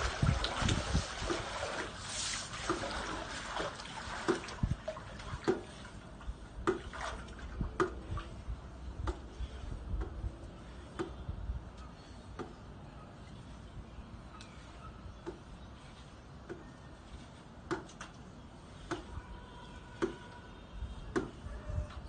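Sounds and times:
pool water splashing: 0.0s - 8.9s.

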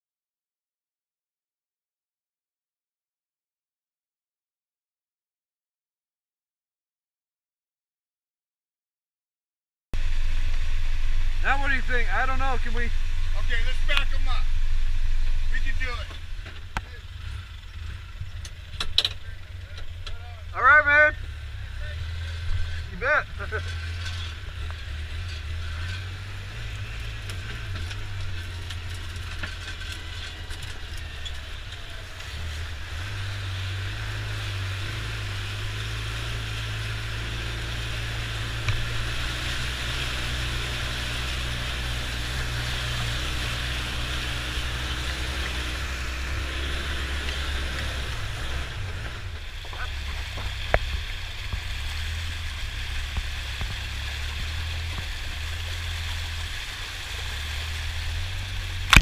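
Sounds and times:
vehicle engine under load: 10.0s - 59.0s
water rushing and splashing: 30.0s - 59.0s.

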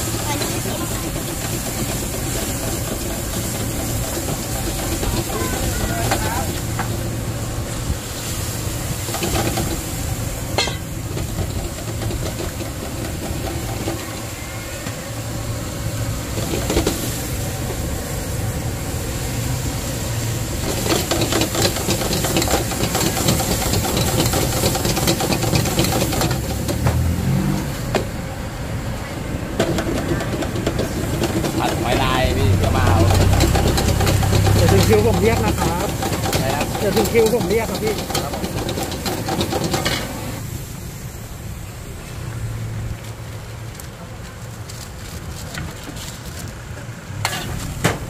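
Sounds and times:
hissing sizzle: 0.0s - 43.7s
stove roaring: 0.0s - 48.0s
metal spatula scraping wok: 29.6s - 40.4s, 47.2s - 47.8s.

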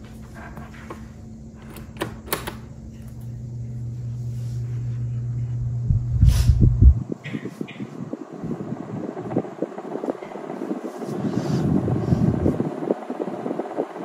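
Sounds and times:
fan motor humming: 0.0s - 14.0s
fan switch clicks: 1.6s - 3.3s
loud low rumble: 3.4s - 14.0s.

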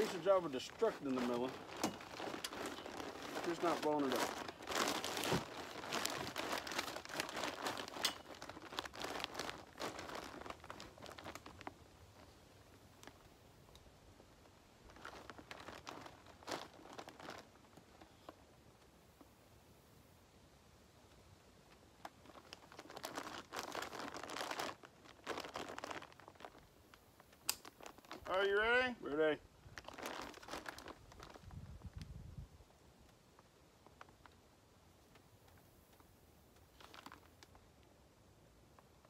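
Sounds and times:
crinkly rustling of shooting bag: 0.0s - 12.4s, 14.8s - 18.4s, 22.0s - 26.7s, 27.6s - 28.6s, 29.6s - 32.1s, 36.6s - 37.6s.

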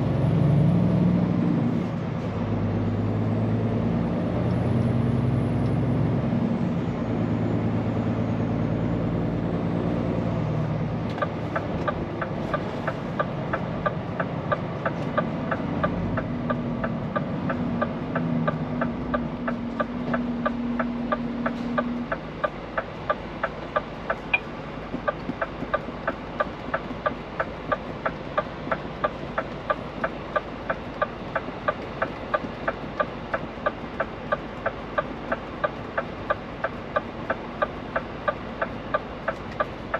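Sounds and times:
diesel engine running: 0.0s - 39.9s
turn signal relay ticking: 11.1s - 39.9s.

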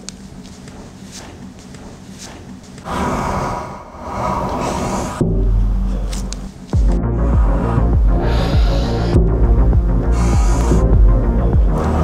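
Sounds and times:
hissing whoosh: 2.3s - 10.9s
dark dramatic music with bass hits: 5.1s - 12.0s.

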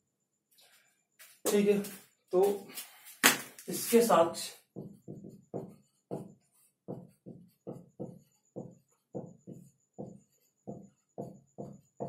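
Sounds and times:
marker squeaking on whiteboard: 4.6s - 12.0s.

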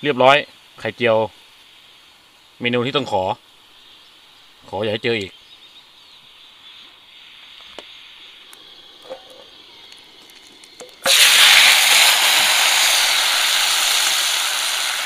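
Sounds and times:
greens sizzling in hot oil: 0.0s - 15.0s
gas burner hissing: 6.3s - 15.0s.

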